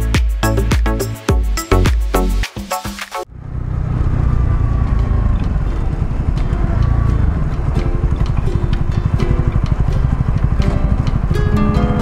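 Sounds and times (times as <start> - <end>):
motorcycle engine running: 3.3 - 12.0.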